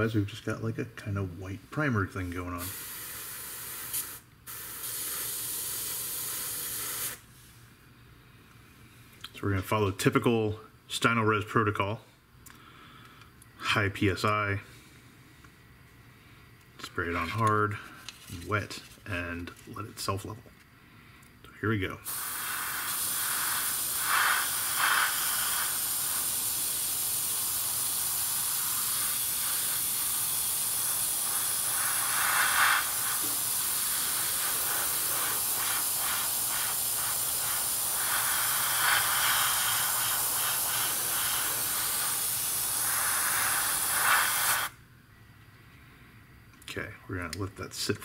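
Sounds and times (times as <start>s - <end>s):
airbrush hissing: 2.6s - 7.6s, 22.0s - 44.8s.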